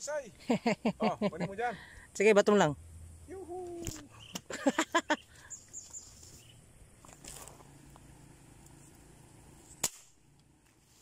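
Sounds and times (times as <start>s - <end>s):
man whooping: 3.3s - 4.1s
soft rustle: 5.6s - 8.0s, 10.6s - 11.0s.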